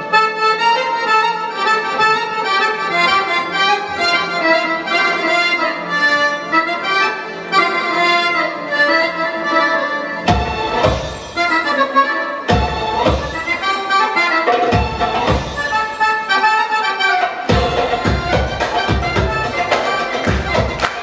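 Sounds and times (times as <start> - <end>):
pop song melody without drums: 12.0 - 16.0, 17.4 - 21.0.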